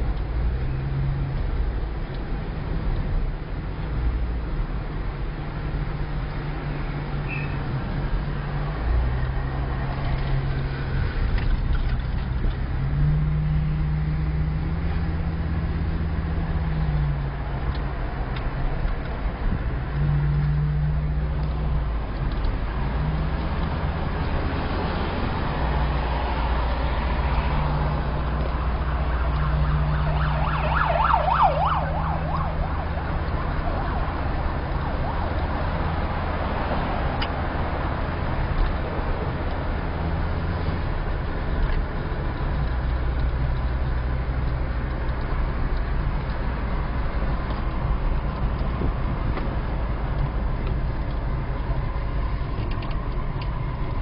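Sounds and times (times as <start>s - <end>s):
car engine and road drone: 0.0s - 54.0s.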